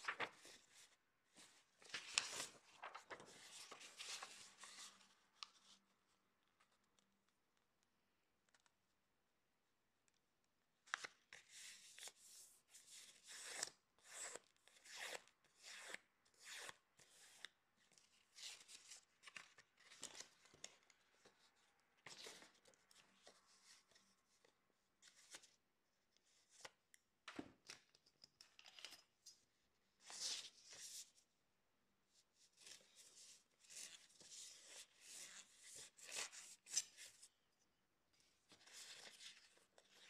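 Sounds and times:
paper rustling as folded: 0.0 - 6.0.

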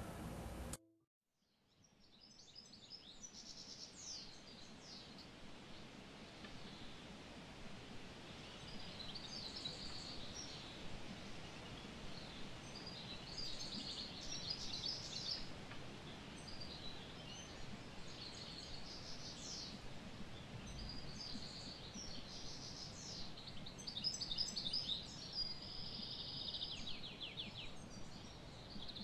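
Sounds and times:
open-air background rush: 0.0 - 0.8, 2.9 - 29.0
small birds chirping: 8.3 - 29.0.

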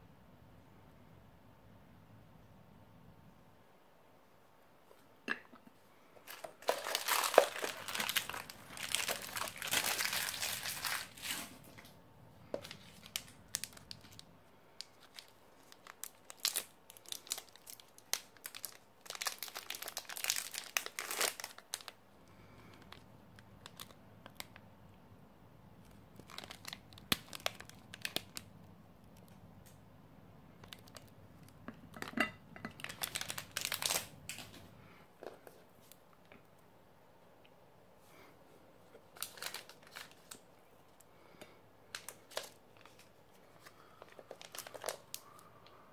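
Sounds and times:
wrapper tearing and crinkling: 6.2 - 11.9, 12.6 - 22.0, 23.6 - 24.5, 26.2 - 28.5, 30.6 - 31.5, 32.7 - 34.6, 39.0 - 40.5, 41.9 - 45.2.

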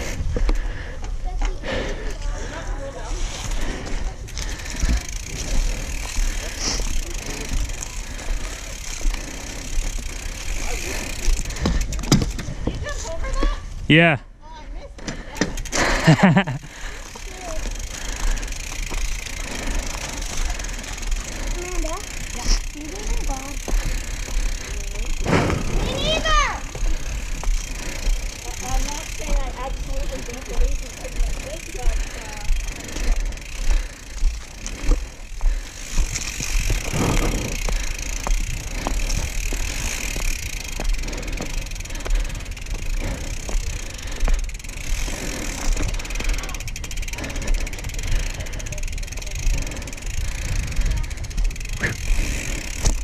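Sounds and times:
mountain bike tyres rolling: 0.0 - 53.0
bike knocks and rattles: 9.8 - 13.6, 34.3 - 53.0.

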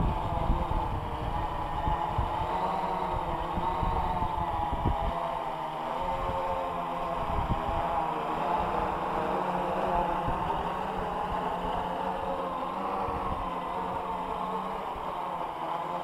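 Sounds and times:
drone propellers buzzing: 0.0 - 16.0.

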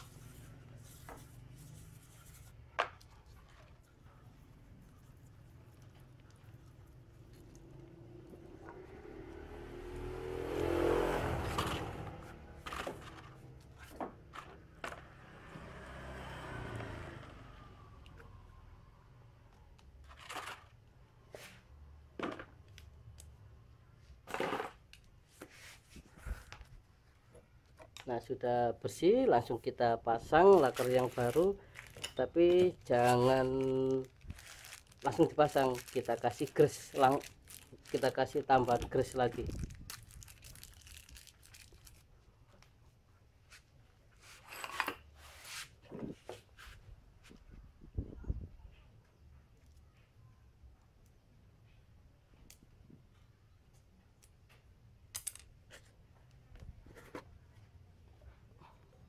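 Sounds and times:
rubbing rustle of hands: 45.2 - 46.9.

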